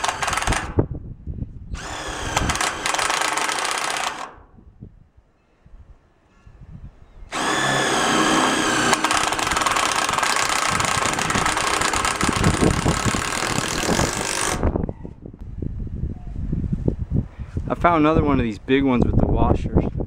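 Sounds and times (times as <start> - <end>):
cordless drill driving screw into metal: 0.0 - 0.8, 1.8 - 4.5, 7.3 - 14.7.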